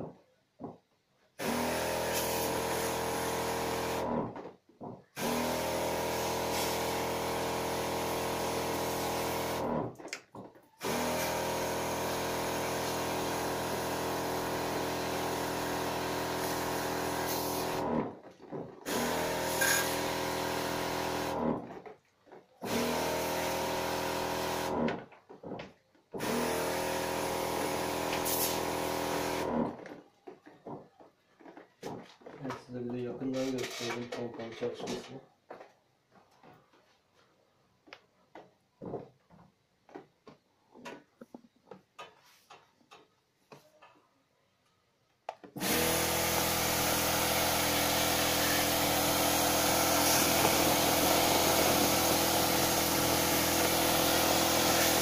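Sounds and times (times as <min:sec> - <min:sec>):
electric pump motor hum: 0:01.4 - 0:04.4, 0:05.2 - 0:10.0, 0:10.8 - 0:21.9, 0:22.6 - 0:25.6, 0:26.2 - 0:30.0, 0:45.5 - 0:55.0
water spray hissing: 0:06.4 - 0:07.0, 0:16.4 - 0:17.8, 0:28.1 - 0:29.0, 0:45.6 - 0:55.0.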